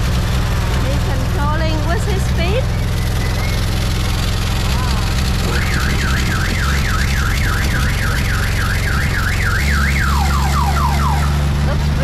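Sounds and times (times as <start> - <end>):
electronic siren: 5.4 - 11.5.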